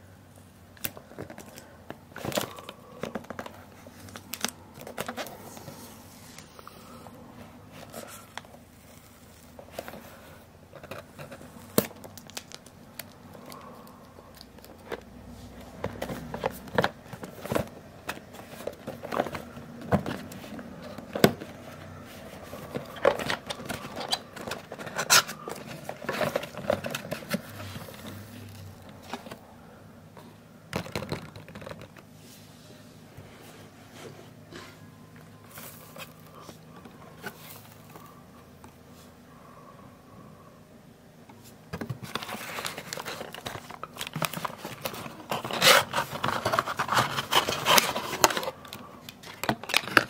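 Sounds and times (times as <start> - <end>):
cardboard box crinkling and clicking: 22.4 - 29.4, 30.7 - 32.1, 41.8 - 50.0.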